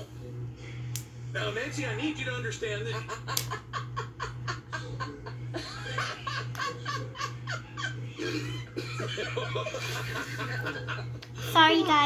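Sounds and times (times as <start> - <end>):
steady low hum: 0.0 - 12.0
person laughing: 3.0 - 11.3.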